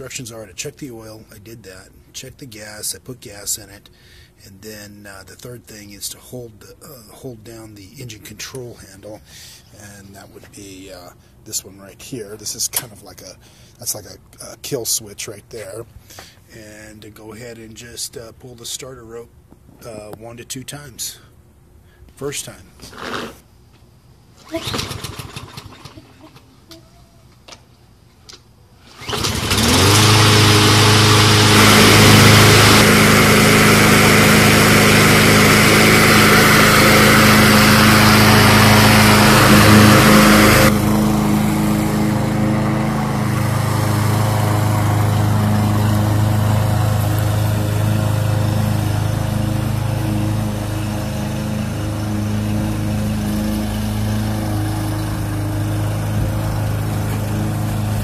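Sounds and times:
recoil starter pull: 24.4s - 26.1s
lawn mower engine running: 24.4s - 26.4s, 28.8s - 58.0s.

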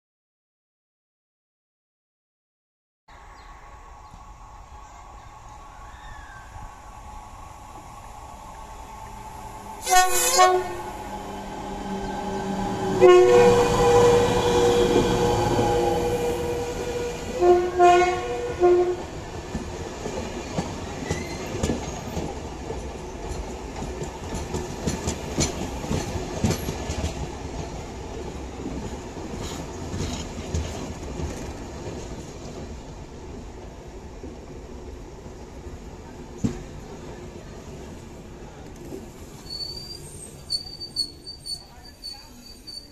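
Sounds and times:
train rumble: 3.2s - 42.9s
train horn blasts: 9.8s - 11.0s, 12.5s - 19.1s
train wheels clicking on rail joints: 19.3s - 32.8s.

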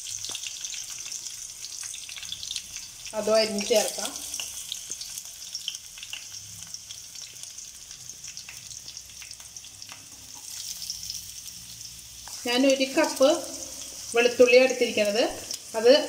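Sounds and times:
spices sizzling in oil: 0.0s - 16.0s.

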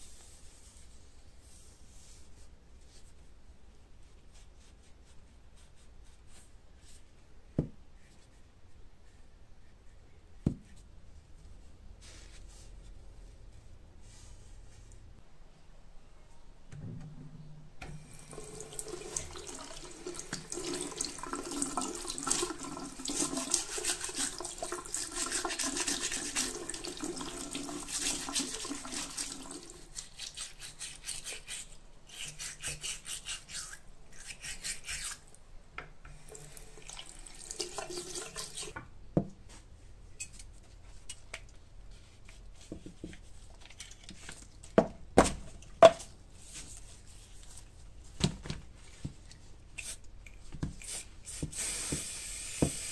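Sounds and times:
tap water running into sink: 17.8s - 29.8s, 36.1s - 38.9s
scrubbing strokes: 18.4s - 35.2s.

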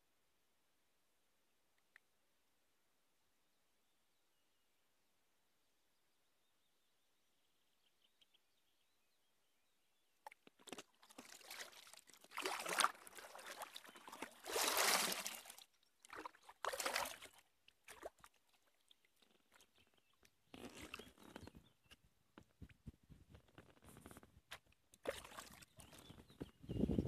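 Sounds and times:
paddle strokes splashing water: 10.4s - 19.8s, 25.0s - 26.2s.

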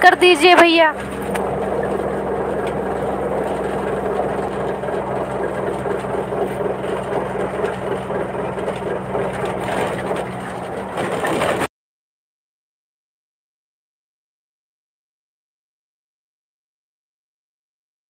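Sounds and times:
train running inside coach: 0.0s - 11.7s.

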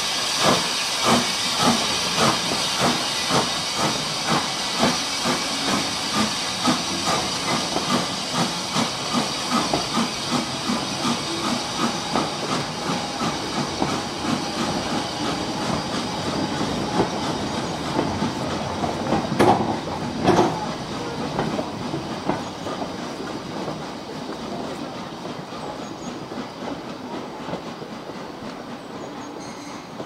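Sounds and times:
rolling stock on rails: 0.0s - 30.0s
steam hiss: 0.0s - 30.0s
steam locomotive exhaust beats: 0.0s - 30.0s.

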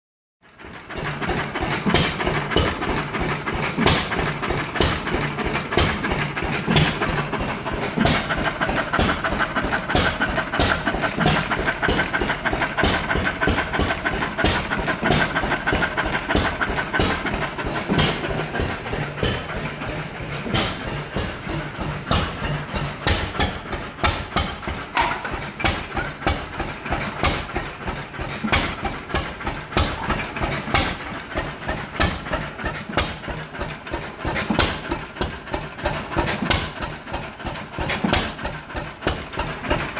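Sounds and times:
stationary engine running: 0.4s - 39.9s.

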